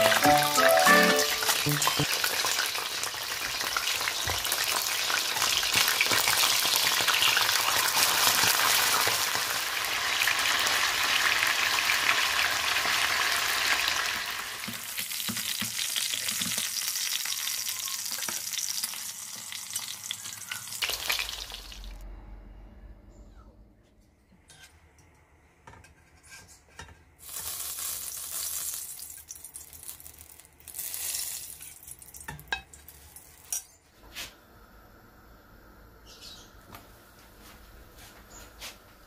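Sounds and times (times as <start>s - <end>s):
fish sizzling in hot oil: 0.0s - 22.0s, 27.2s - 32.2s.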